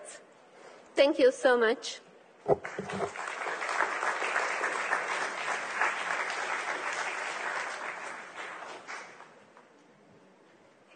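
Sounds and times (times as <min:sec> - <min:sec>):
audience applauding: 0:02.5 - 0:09.4.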